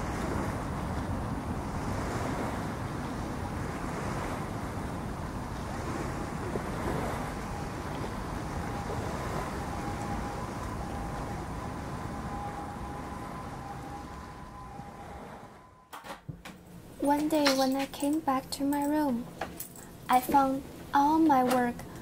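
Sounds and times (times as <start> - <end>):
sea waves washing ashore: 0.0 - 15.8
wind: 0.0 - 22.0.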